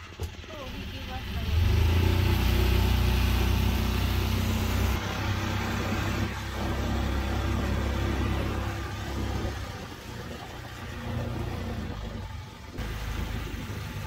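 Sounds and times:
motor boat engine running: 0:00.0 - 0:14.0.

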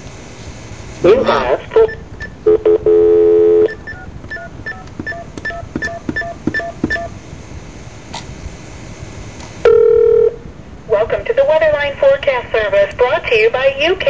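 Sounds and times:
telephone call tone: 0:01.4 - 0:05.6, 0:09.6 - 0:10.4
keypad dialing beeps: 0:01.8 - 0:07.1
two-pitch telephone tone: 0:01.8 - 0:07.2, 0:09.6 - 0:10.4.

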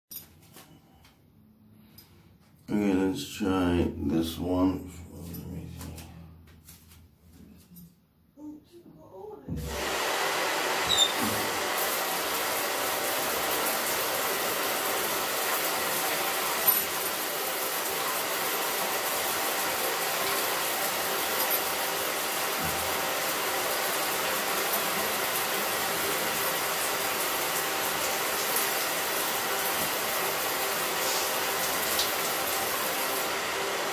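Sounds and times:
water running from tap: 0:09.5 - 0:33.9.

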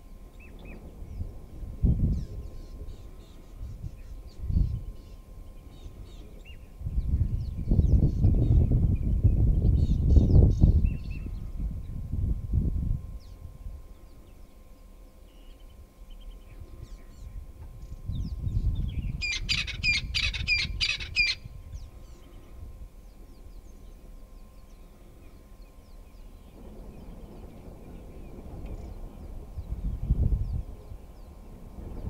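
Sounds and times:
low rumble: 0:21.4 - 0:32.0.

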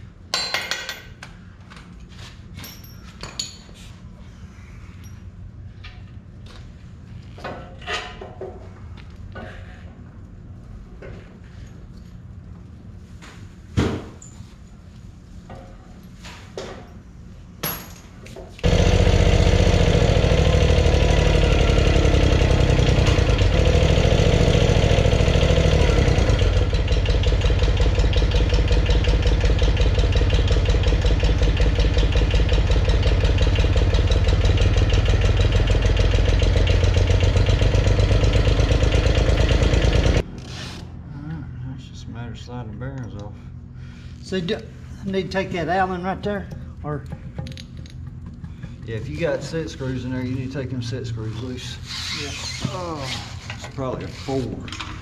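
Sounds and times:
motor running with fast pulse: 0:18.6 - 0:40.7.

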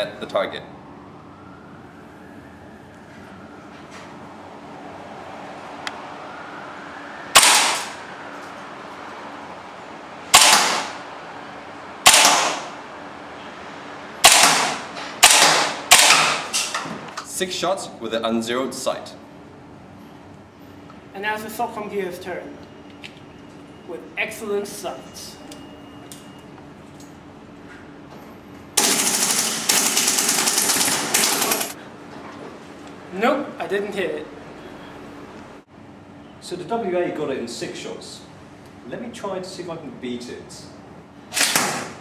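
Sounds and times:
airsoft pistol shots: 0:07.4 - 0:08.0, 0:10.3 - 0:11.0, 0:12.0 - 0:12.8, 0:14.2 - 0:16.6, 0:41.3 - 0:42.0
airsoft rifle firing bursts: 0:28.8 - 0:31.8.

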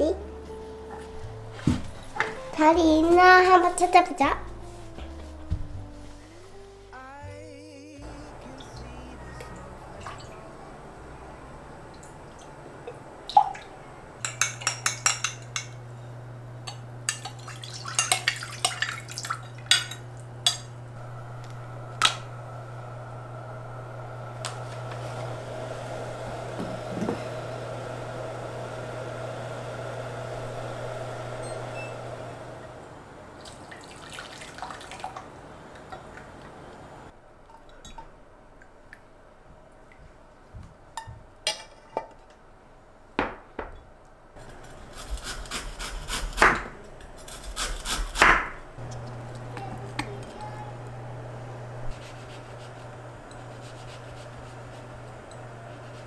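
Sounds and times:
low hum: 0:08.0 - 0:17.4, 0:19.2 - 0:33.3, 0:48.8 - 0:56.0.

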